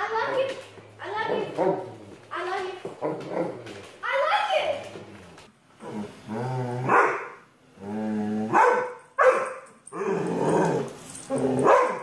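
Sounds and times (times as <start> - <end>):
dog growling: 4.9 - 7.0, 7.7 - 8.6, 10.0 - 12.0
dog barking: 6.9 - 7.4, 8.5 - 9.6, 11.6 - 12.0.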